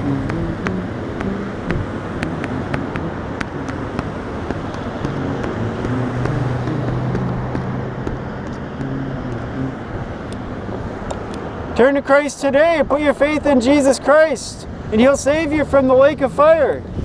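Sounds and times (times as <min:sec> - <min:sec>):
low engine hum: 0:00.0 - 0:11.9
cars driving by: 0:00.0 - 0:17.0.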